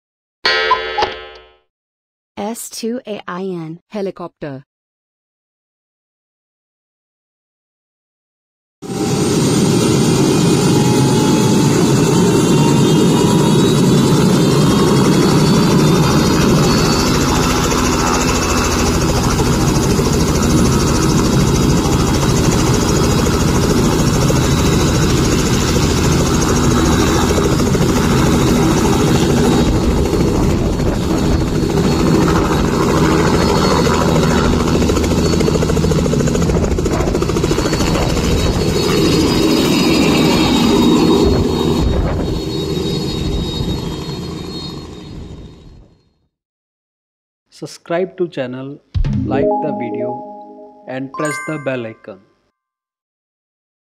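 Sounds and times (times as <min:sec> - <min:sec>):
helicopter turbine and rotor: 0:08.8 - 0:46.1.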